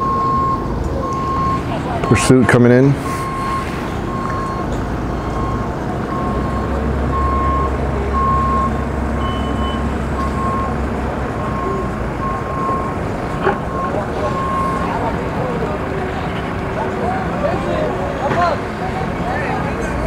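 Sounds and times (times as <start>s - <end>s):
reversing alarm beeping: 0.0s - 15.6s
low engine rumble: 0.0s - 20.0s.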